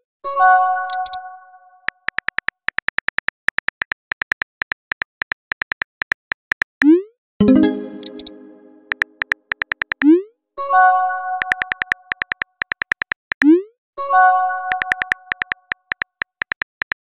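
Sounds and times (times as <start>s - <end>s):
on-screen keyboard clicks: 0.8s - 1.2s, 1.9s - 10.2s, 11.4s - 13.6s, 14.7s - 17.0s
bright multi-note chime: 7.4s - 8.9s
message chime: 7.4s - 9.1s.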